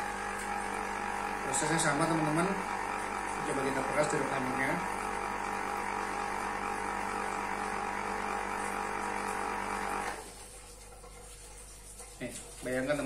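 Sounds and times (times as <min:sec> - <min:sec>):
citrus juicer motor humming: 0:00.0 - 0:11.4.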